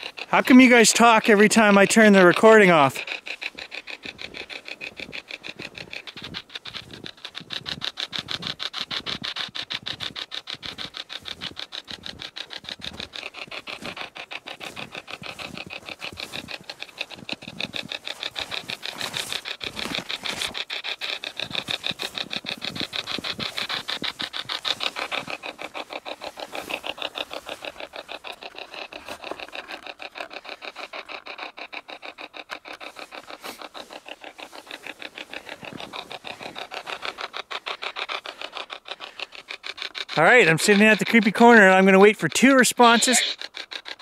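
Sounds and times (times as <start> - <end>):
radio sweeping static: 40.2 - 43.4.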